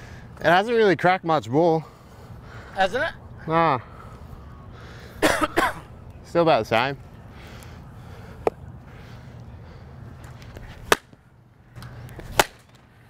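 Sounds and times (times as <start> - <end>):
low steady hum: 0.0 - 13.0
cricket ball hitting bat: 10.9 - 11.2, 12.3 - 12.7.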